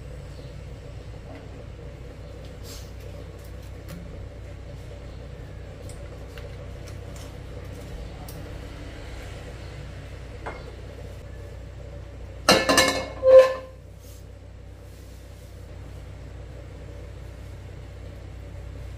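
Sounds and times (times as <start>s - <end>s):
steady low hum: 0.0s - 18.9s
kitchenware clinking: 12.5s - 13.8s.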